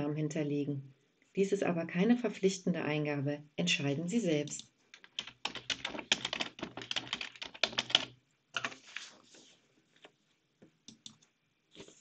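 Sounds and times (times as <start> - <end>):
typing on a keyboard: 4.5 - 8.8.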